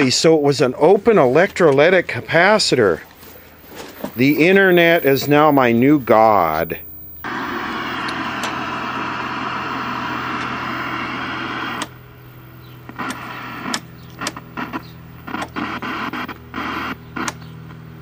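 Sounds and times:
mains hum: 0.0s - 18.0s
tv static hiss: 0.0s - 18.0s
snatches of tv sound: 3.2s - 8.8s, 12.9s - 17.8s.

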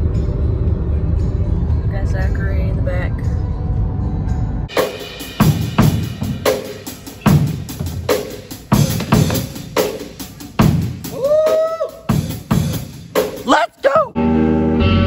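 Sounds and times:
drum kit beat: 4.7s - 14.1s.

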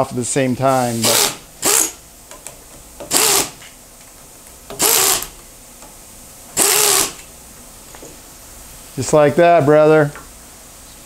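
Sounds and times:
pneumatic air tool bursts: 1.0s - 2.0s, 3.1s - 3.6s, 4.8s - 5.3s, 6.6s - 7.2s.

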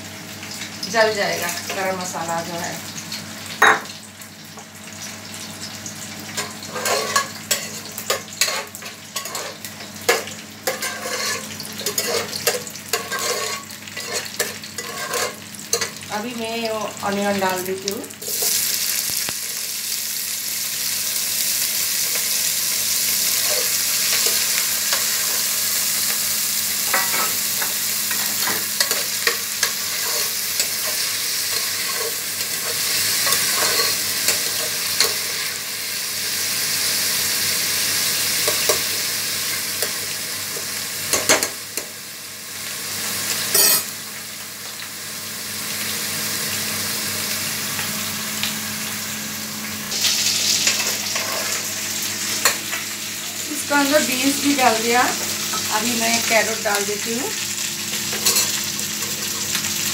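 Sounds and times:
onions sizzling in a pot: 0.0s - 59.9s
spoon scraping a steel pot: 10.7s - 15.9s.

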